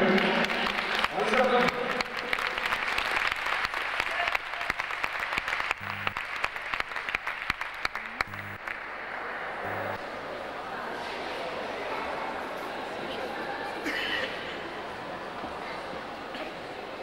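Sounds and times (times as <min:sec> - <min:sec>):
audience applauding: 0:00.1 - 0:08.9.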